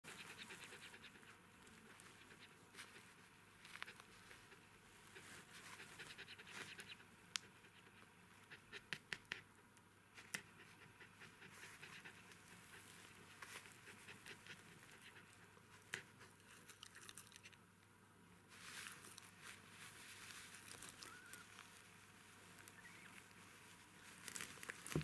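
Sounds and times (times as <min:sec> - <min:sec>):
dog panting: 0:00.1 - 0:09.5, 0:10.2 - 0:16.9.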